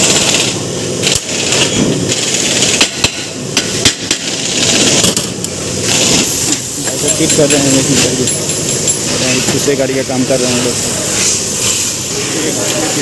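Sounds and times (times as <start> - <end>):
workshop background noise: 0.0 - 13.0
metal tools clanking on cart: 6.4 - 10.7.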